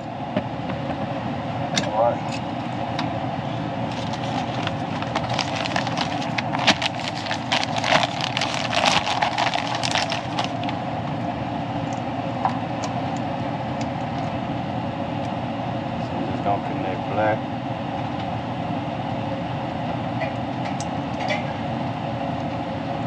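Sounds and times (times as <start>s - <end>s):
mechanical hum: 0.0s - 23.0s
plastic bag crinkling: 3.9s - 10.8s.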